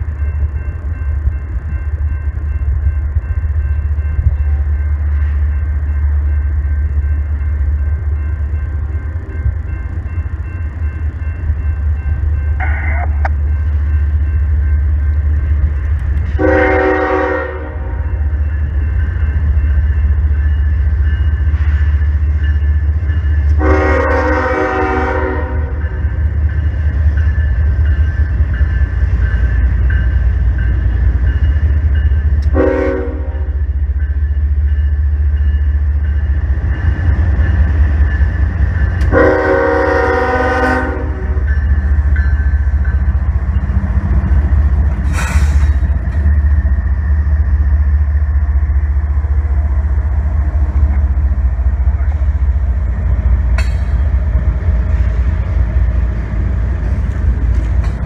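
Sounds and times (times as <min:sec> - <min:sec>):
train engine rumble: 0:00.0 - 0:58.0
locomotive air horn blasts: 0:16.3 - 0:18.0, 0:23.6 - 0:25.8, 0:32.5 - 0:33.6, 0:39.1 - 0:41.4.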